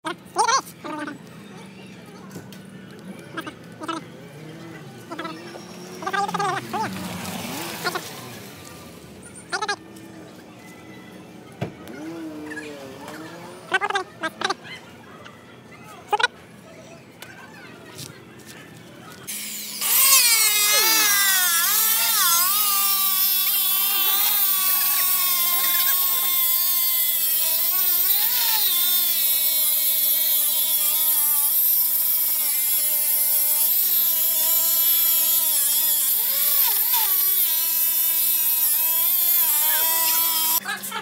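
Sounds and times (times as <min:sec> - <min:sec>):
electric stone cutter whining: 0:19.3 - 0:40.6.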